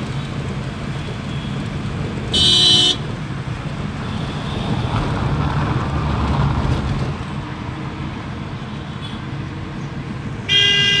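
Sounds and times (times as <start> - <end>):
engine and road rumble: 0.0 - 11.0
vehicle horn: 2.3 - 3.1, 10.5 - 11.0.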